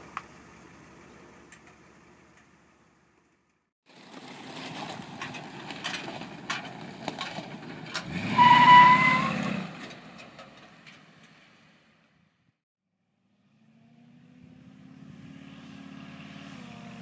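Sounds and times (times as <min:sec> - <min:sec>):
truck engine accelerating: 0:00.0 - 0:11.6, 0:13.2 - 0:17.0
high-pitched squeal: 0:08.0 - 0:09.6.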